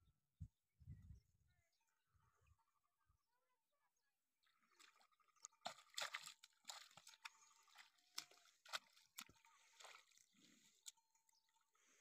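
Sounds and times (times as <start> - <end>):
hooves splashing through mud: 4.5 - 12.0.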